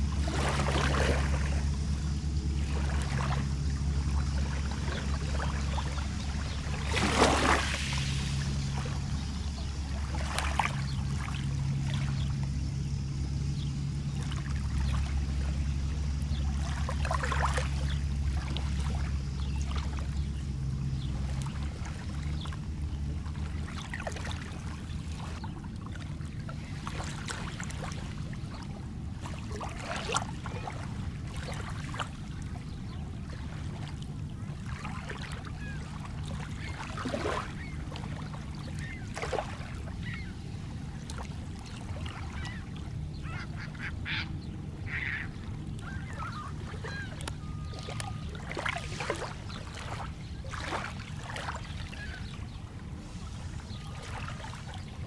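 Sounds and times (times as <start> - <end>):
steady low rumble: 0.0 - 55.0
short bird calls: 42.2 - 48.4.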